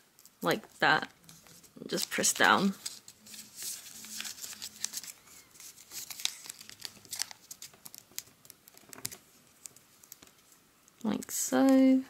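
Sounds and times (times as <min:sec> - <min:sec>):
paper crinkling and rustling: 0:01.2 - 0:10.6.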